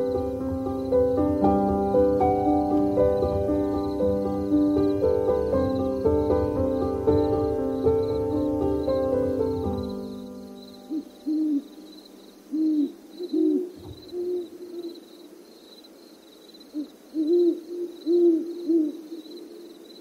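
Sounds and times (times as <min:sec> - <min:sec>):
background music: 0:00.0 - 0:11.3
owl hooting: 0:07.9 - 0:15.5, 0:16.6 - 0:20.0.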